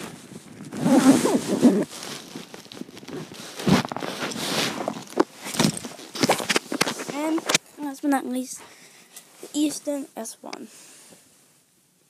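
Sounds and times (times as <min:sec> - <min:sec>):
microphone handling rustling: 0:00.0 - 0:07.7.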